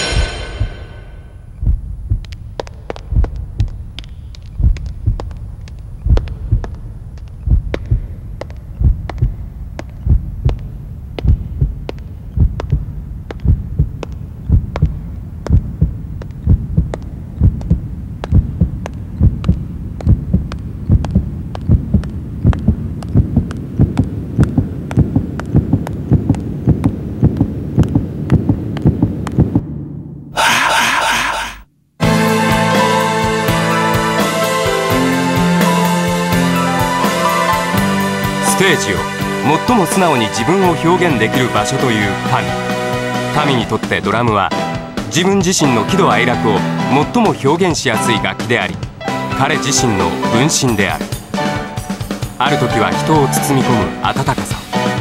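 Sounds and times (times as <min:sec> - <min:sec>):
heartbeat thumps: 0:00.0 - 0:31.7
low hum: 0:00.0 - 0:34.0.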